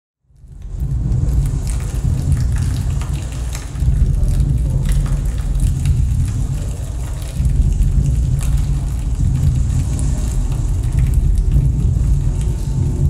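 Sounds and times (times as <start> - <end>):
low noise music rumble: 0.2 - 13.0
scattered crackles: 0.4 - 13.0.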